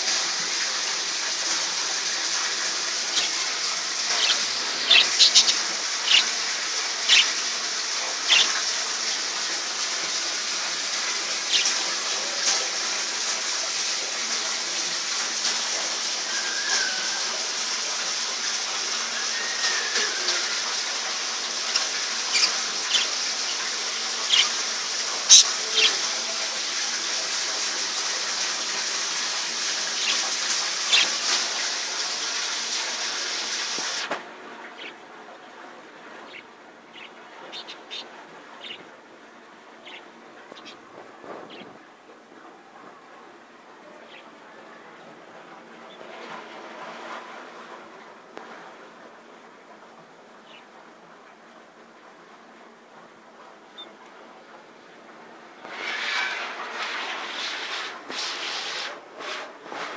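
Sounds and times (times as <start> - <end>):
waterfall rushing into pond: 0.0 - 42.6, 54.7 - 59.9
budgerigars chirping: 3.1 - 3.3, 4.1 - 6.4, 7.0 - 7.4, 8.2 - 8.6, 11.5 - 11.7, 21.8 - 24.6, 25.2 - 25.5, 30.9 - 31.1.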